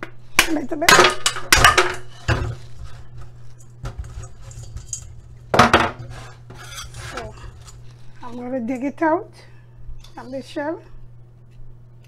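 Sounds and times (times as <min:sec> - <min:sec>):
metallic clatter of colander: 0:01.0 - 0:07.9.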